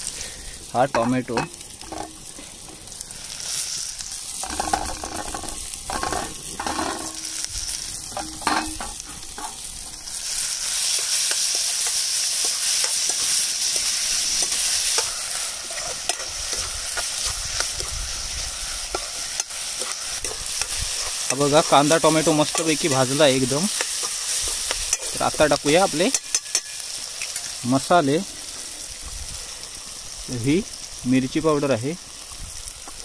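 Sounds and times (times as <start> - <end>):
onion frying in hot oil: 0.0 - 33.0
spatula scraping pan: 4.3 - 18.0, 18.8 - 25.5.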